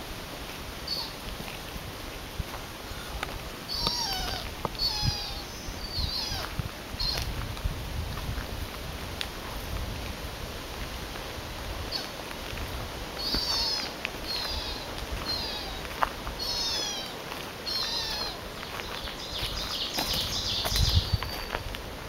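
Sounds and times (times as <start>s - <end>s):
high mewing animal calls: 0.9s - 1.2s, 2.9s - 7.3s, 13.2s - 21.4s.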